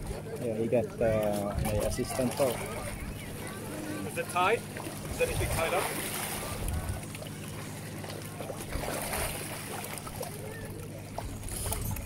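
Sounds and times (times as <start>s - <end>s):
faint voices of people: 0.0s - 8.8s, 10.0s - 12.0s
water lapping at rocks: 0.0s - 12.0s
wind rumble on microphone: 5.1s - 5.7s, 6.4s - 7.1s.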